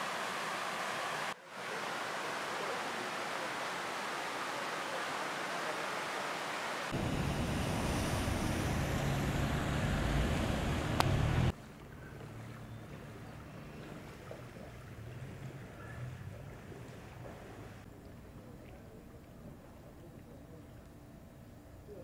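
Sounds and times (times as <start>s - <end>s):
river rushing: 0.0s - 11.6s
low rumble: 6.9s - 11.5s.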